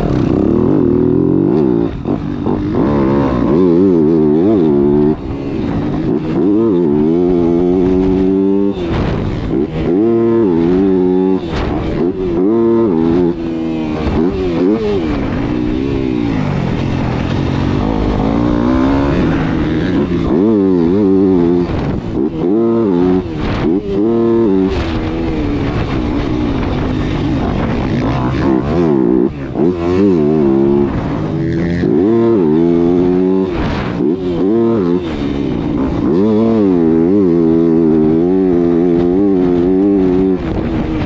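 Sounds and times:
motocross bike engine revving: 0.0s - 41.0s.

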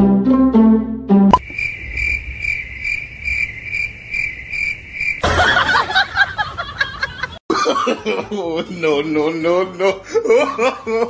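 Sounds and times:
cricket chirping: 1.4s - 7.3s.

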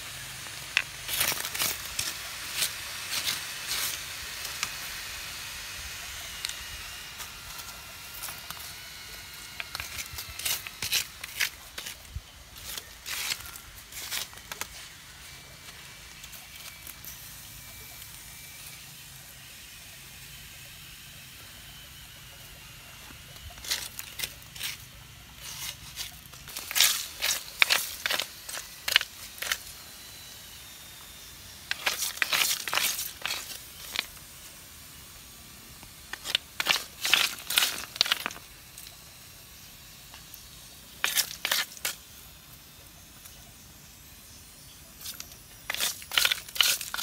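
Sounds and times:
stick scraping through gravel: 0.0s - 18.2s, 23.4s - 34.8s, 35.7s - 39.2s, 40.0s - 42.4s, 44.9s - 47.0s.

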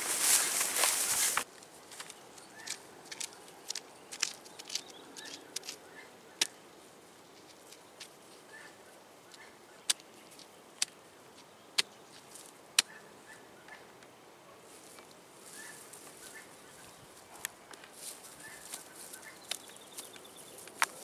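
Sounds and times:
grass rustling: 0.0s - 21.0s
sticks clicking and snapping: 1.4s - 5.8s, 9.3s - 12.9s, 18.6s - 21.0s.

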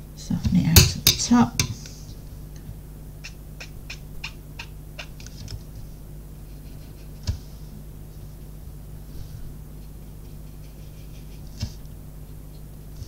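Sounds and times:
steady low hum: 0.0s - 13.0s
brush scratching on card: 6.5s - 7.7s, 9.8s - 11.8s.

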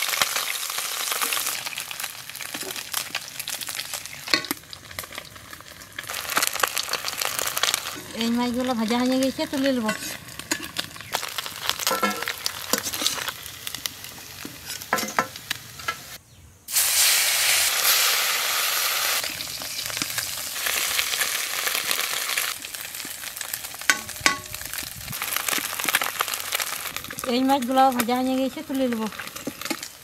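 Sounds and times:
fish sizzling in oil: 0.0s - 30.0s
metal spatula scraping pan: 9.6s - 10.9s, 11.8s - 13.3s.

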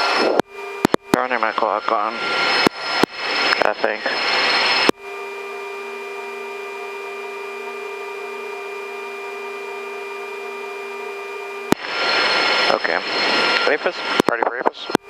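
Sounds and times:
helicopter engines whining: 0.0s - 15.0s.

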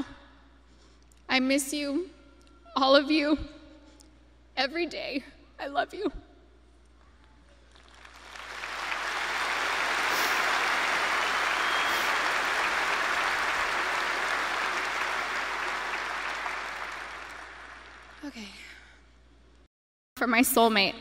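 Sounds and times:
large crowd applauding: 7.7s - 18.3s.

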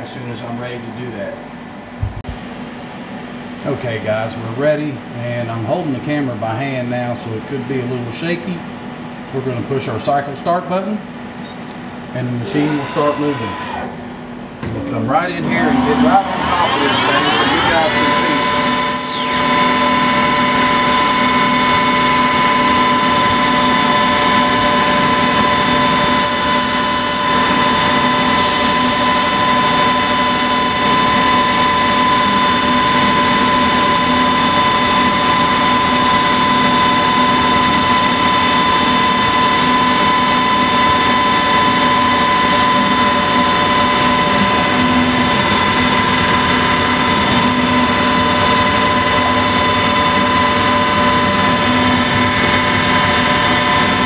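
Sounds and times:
lathe spindle whining: 12.2s - 14.1s, 15.2s - 54.0s.

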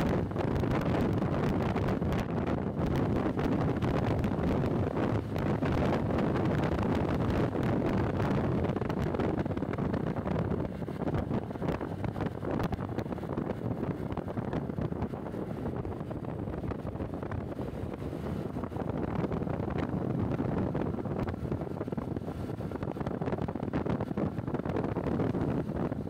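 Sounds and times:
road and vehicle noise: 0.0s - 26.0s
wind buffeting microphone: 0.0s - 26.0s.

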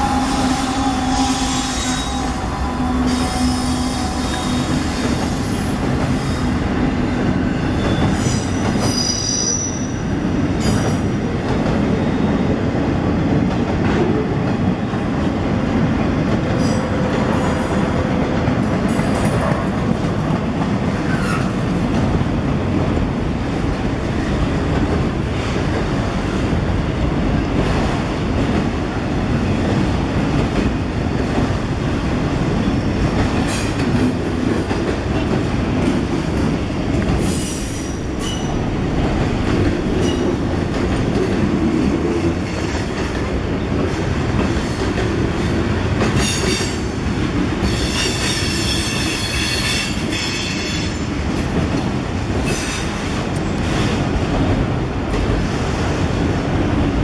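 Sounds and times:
locomotive engine drone: 0.0s - 4.9s
freight cars rumbling on rails: 0.0s - 57.0s.

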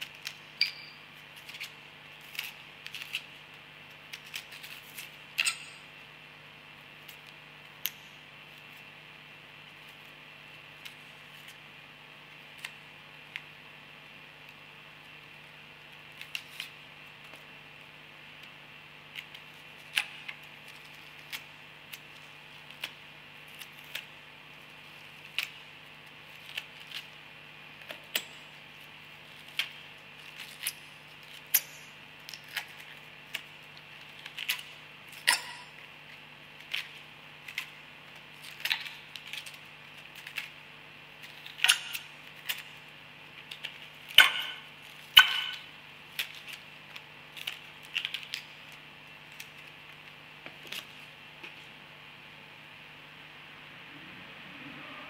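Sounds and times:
steady low hum: 0.0s - 55.0s
onion skin crackling and tearing: 1.3s - 3.3s, 4.1s - 5.5s, 19.1s - 24.2s, 36.6s - 40.6s, 46.1s - 51.0s.

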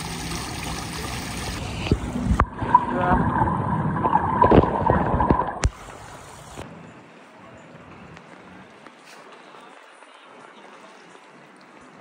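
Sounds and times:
water running into drain: 0.0s - 6.6s
underwater gurgling and bubbling: 1.4s - 6.6s.

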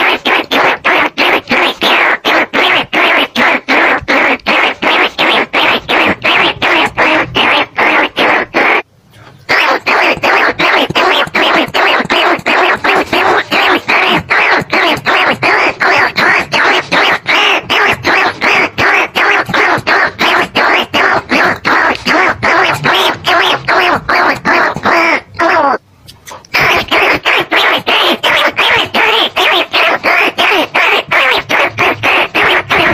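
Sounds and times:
rapid rat calls: 0.0s - 32.9s.

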